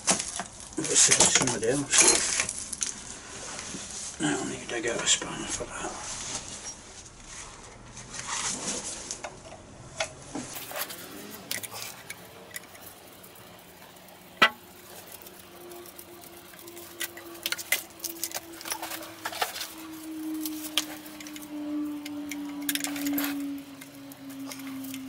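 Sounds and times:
metal hand tools clinking: 10.6s - 25.0s.

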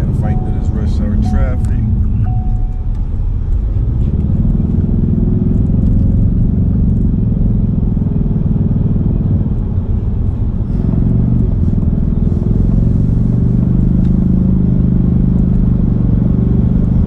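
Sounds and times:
car engine: 0.0s - 17.0s
road noise inside car: 0.0s - 17.0s
brief beep: 0.2s - 3.0s.

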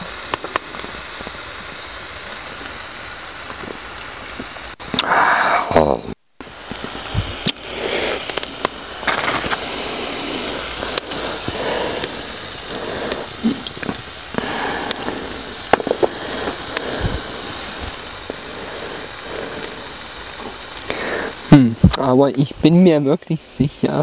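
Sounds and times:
campfire crackling and popping: 0.0s - 24.0s
steady hiss: 0.0s - 24.0s
rustling: 6.4s - 22.0s.

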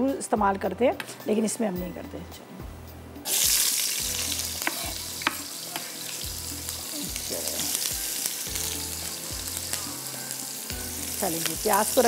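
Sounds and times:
onions sizzling in hot oil: 3.2s - 12.0s.

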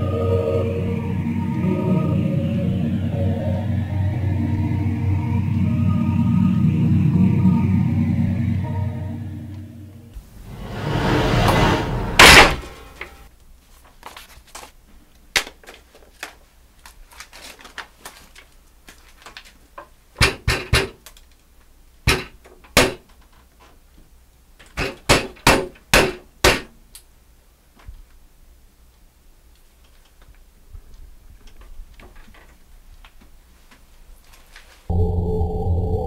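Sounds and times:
rising whoosh: 10.2s - 13.3s
loud door slam: 11.5s - 13.0s.

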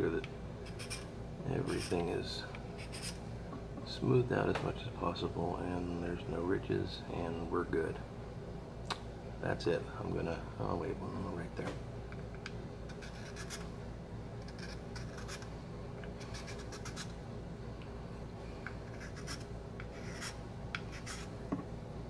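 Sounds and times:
hand file scraping wood: 18.9s - 21.3s.

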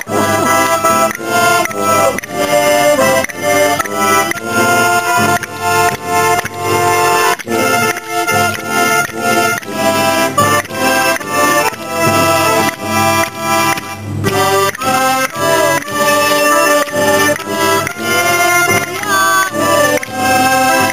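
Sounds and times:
accordion playing a tune: 0.0s - 20.9s.

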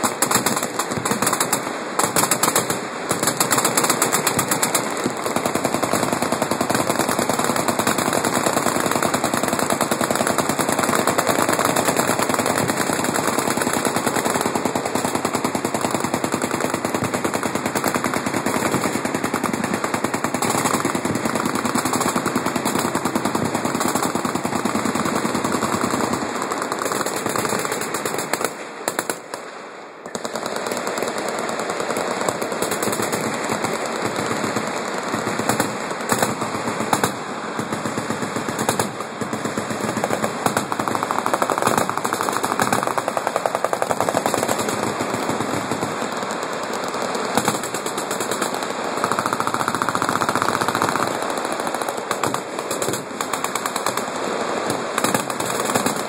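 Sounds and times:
machine guns firing full-auto: 0.0s - 29.4s, 30.0s - 56.0s.

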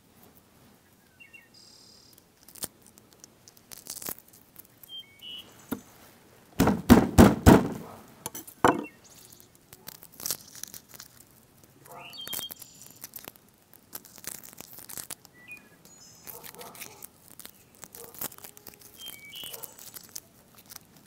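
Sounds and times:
knocks: 6.6s - 7.9s, 8.6s - 8.9s.

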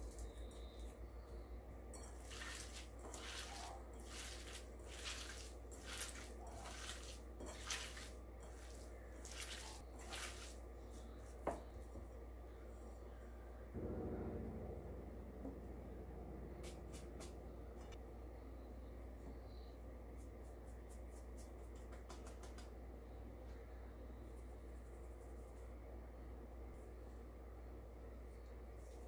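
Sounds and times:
hand squishing wet food: 2.0s - 12.2s.

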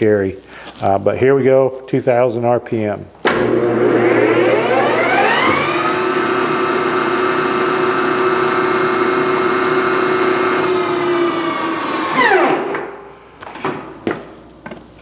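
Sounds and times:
lathe spindle humming and whining: 3.3s - 12.6s.

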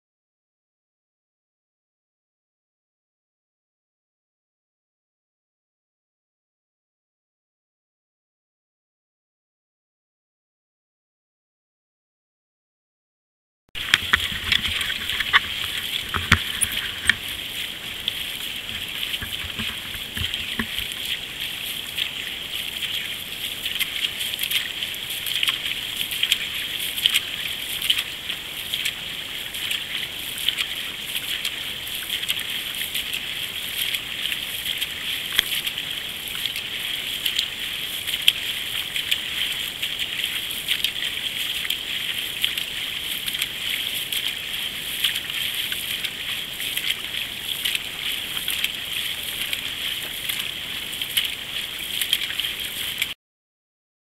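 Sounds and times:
canoe paddles splashing: 13.8s - 53.2s
water rushing along hull: 13.8s - 53.2s.

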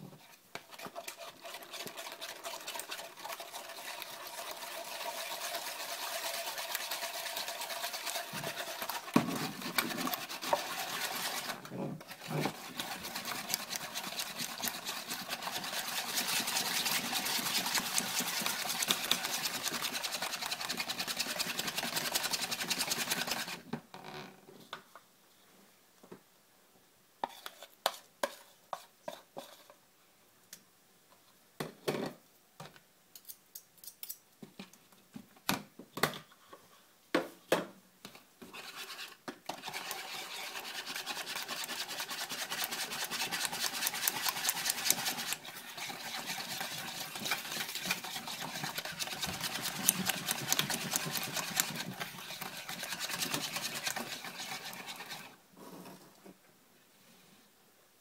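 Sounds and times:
whisk beating batter in plastic bowl: 0.0s - 23.7s, 38.4s - 55.4s
spoon scraping and tapping bowl: 27.2s - 29.7s.

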